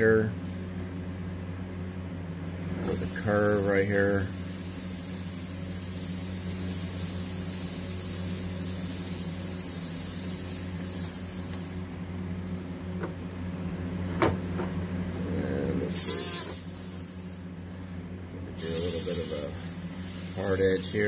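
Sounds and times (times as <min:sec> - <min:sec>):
low motor hum: 0:00.0 - 0:21.0
airbrush hissing: 0:02.9 - 0:11.8, 0:15.9 - 0:17.5, 0:18.6 - 0:21.0.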